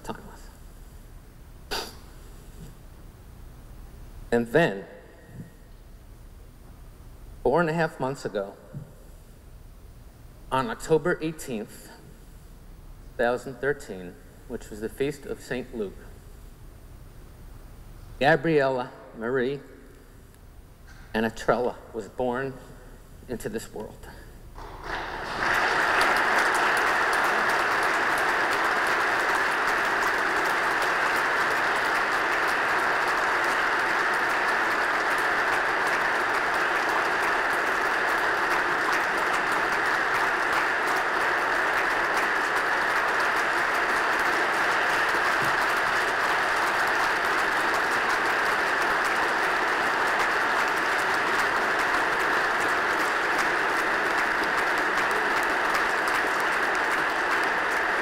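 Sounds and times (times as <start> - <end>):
audience applause: 24.6 - 58.0.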